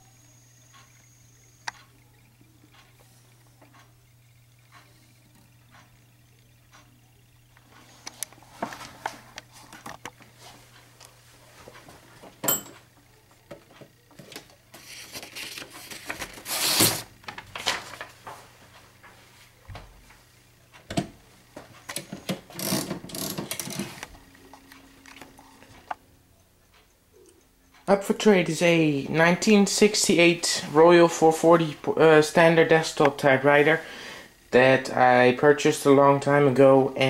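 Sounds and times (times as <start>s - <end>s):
manual typewriter clicking and rattling: 21.9s - 24.1s.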